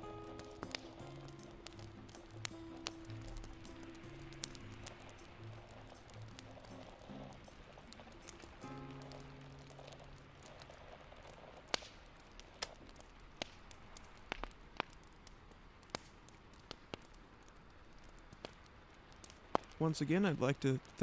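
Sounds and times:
background music: 0.0s - 10.8s
rain drop ticks: 0.0s - 21.0s
rain on rooftop hiss: 0.0s - 21.0s.

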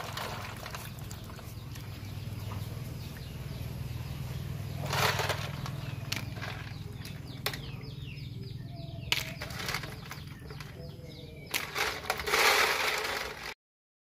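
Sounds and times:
water splashing and sloshing: 0.0s - 3.9s
bird chirping: 0.0s - 12.4s.

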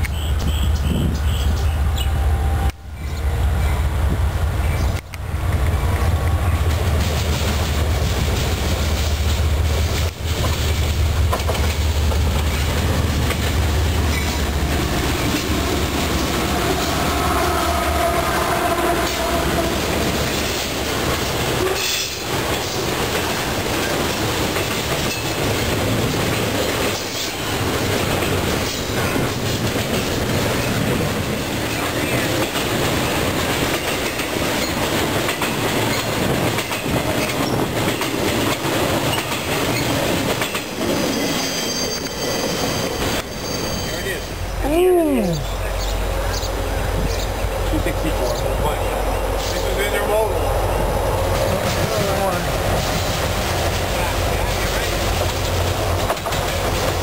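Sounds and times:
diesel locomotive rumble: 0.0s - 57.0s
freight cars rattling: 4.6s - 44.6s, 45.4s - 57.0s
wheels clicking on rails: 4.8s - 17.4s, 18.8s - 44.4s, 51.2s - 57.0s.

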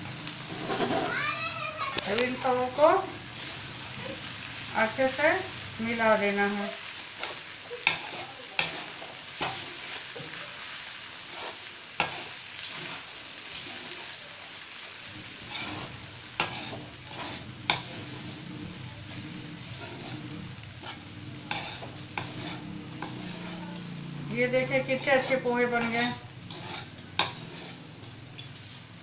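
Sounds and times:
low sizzle: 0.0s - 29.0s
spatula scraping metal pan: 0.4s - 1.2s, 7.2s - 9.9s, 11.3s - 14.2s, 15.2s - 28.9s
spatula clinking against pan: 7.8s - 8.8s.

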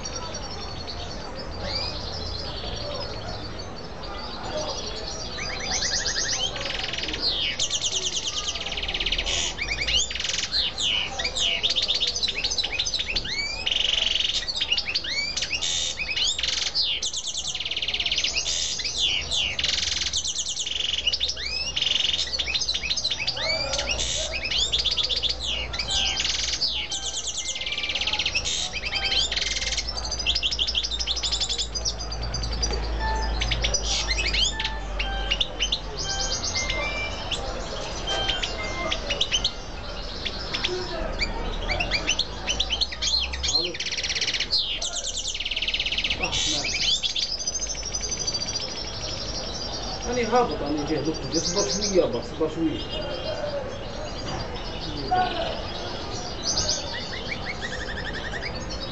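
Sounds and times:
songbirds trilling and whistling: 0.0s - 58.9s.

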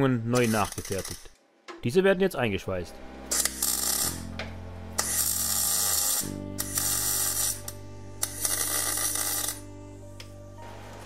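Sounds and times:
welding arc crackling: 0.3s - 1.4s, 3.3s - 4.3s, 5.0s - 9.7s.

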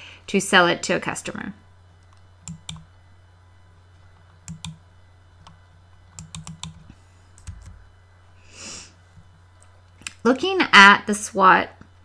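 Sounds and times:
low electrical hum: 0.0s - 12.0s
sharp clicks and taps: 2.1s - 2.9s, 4.5s - 4.8s.

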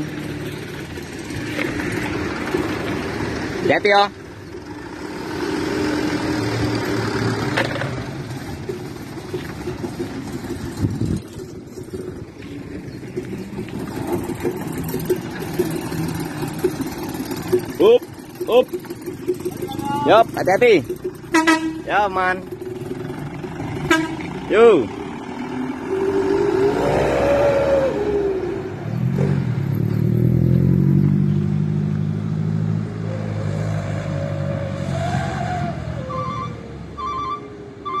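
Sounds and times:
truck diesel engine rumbling: 0.0s - 38.0s
whistle exhaust howling: 25.9s - 28.8s, 33.0s - 38.0s.

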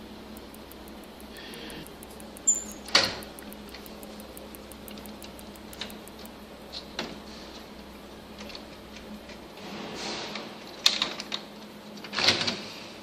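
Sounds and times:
faint steady hum: 0.0s - 9.8s.

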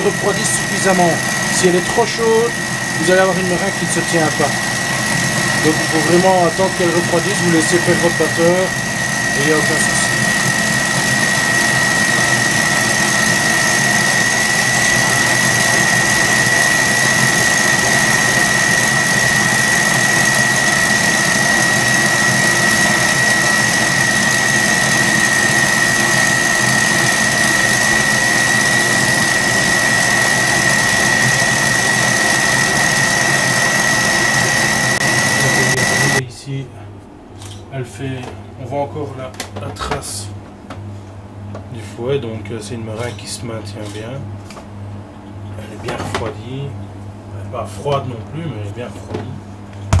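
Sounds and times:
stand mixer whisking: 0.0s - 36.2s
steady high whine: 0.0s - 44.0s.

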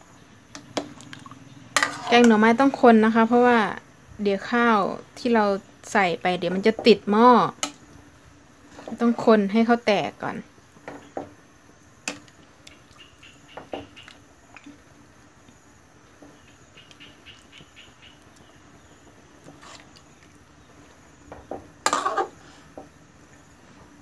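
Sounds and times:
metal ladle scraping a pot: 1.8s - 2.6s, 19.5s - 20.0s, 21.9s - 22.3s.

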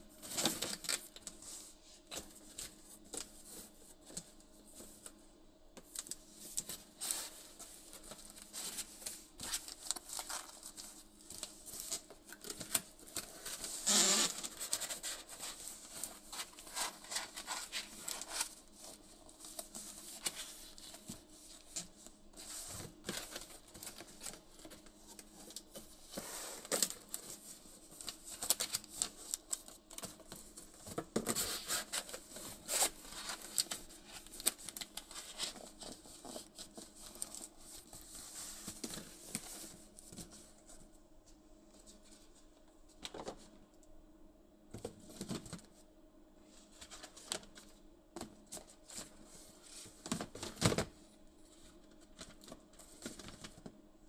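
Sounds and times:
cardboard being folded: 6.0s - 40.6s.

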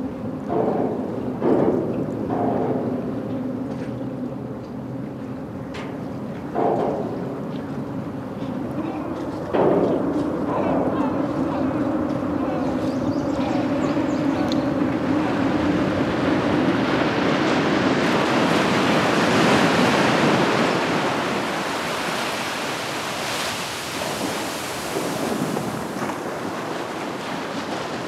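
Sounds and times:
ocean waves breaking: 0.0s - 28.0s.

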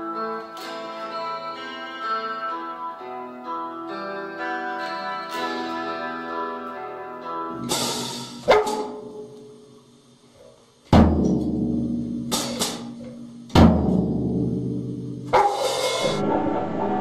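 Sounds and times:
heavy drum hits: 13.6s - 17.0s
cymbal crash: 15.3s - 17.0s.

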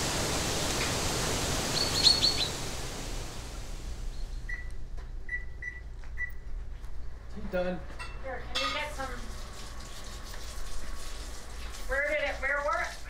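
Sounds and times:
high chirps: 1.7s - 2.6s
eggs sizzling in a pan: 8.6s - 13.0s.

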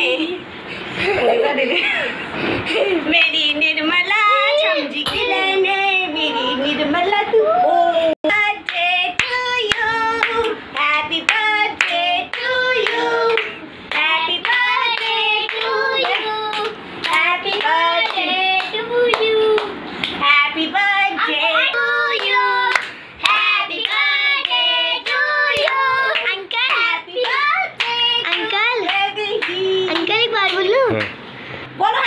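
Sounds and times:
children clapping hands: 11.3s - 20.2s, 22.2s - 31.2s
young children singing: 20.3s - 28.9s.

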